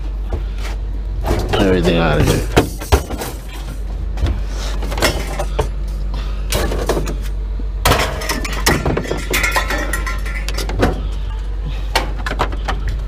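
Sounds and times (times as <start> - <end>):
steady low hum: 0.0 - 13.0
scrap metal clattering: 4.5 - 5.8, 7.9 - 11.2.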